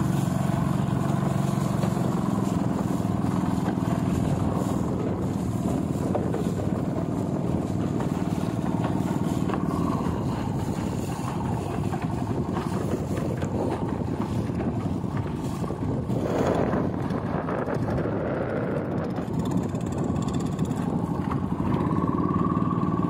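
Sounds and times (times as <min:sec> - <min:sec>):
rush of noise: 0:00.0 - 0:14.6
boat engine running: 0:00.0 - 0:23.0
wind on microphone: 0:00.0 - 0:23.0.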